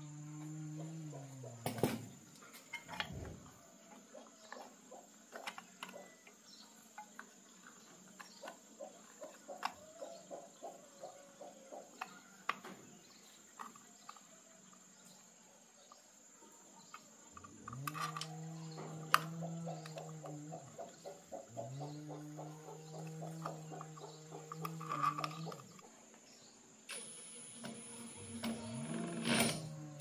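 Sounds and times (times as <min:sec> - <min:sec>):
electric motor humming: 0:26.9 - 0:30.0
high-pitched insect chirr: 0:26.9 - 0:30.0.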